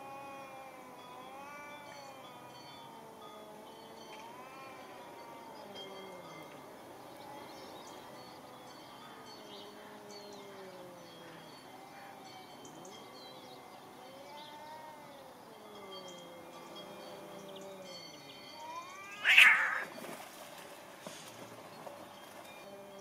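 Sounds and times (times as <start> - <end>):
small birds chirping: 7.1 - 20.2
cats yowling: 18.6 - 20.0.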